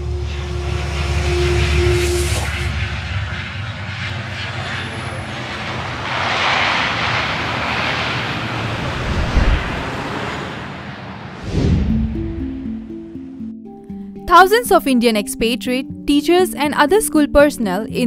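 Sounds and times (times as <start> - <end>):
rushing noise: 0.0 - 13.6
airliner engine drone: 0.0 - 18.0
sharp whoosh: 5.5 - 13.2
low thump: 11.4 - 13.0.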